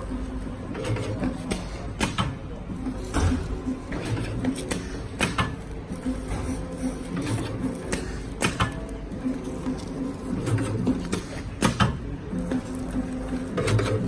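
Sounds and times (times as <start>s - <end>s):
pulsing mechanical hum: 0.0s - 14.0s.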